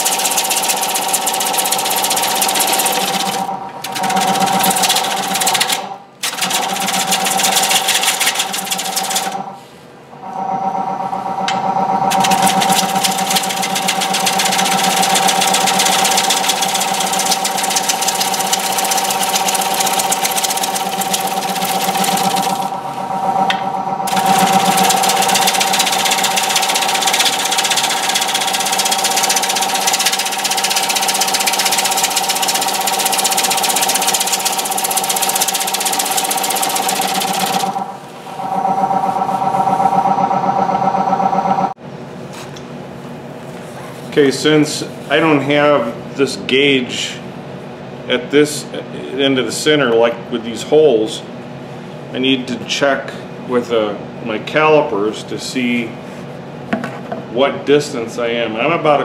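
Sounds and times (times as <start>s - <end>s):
gouge cutting wood: 0.0s - 9.4s, 12.1s - 22.8s, 24.1s - 37.9s
wood lathe motor hum: 0.0s - 9.6s, 10.2s - 41.7s.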